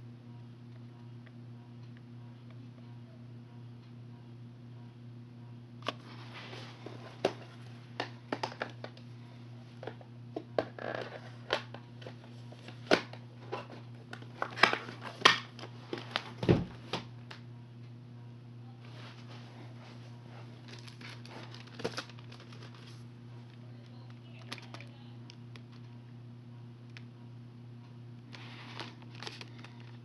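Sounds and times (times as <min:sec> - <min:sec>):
low electrical hum: 0:00.0 - 0:30.0
plastic cases clicking and rustling: 0:07.2 - 0:09.0, 0:09.8 - 0:16.3, 0:20.6 - 0:22.9, 0:28.7 - 0:30.0.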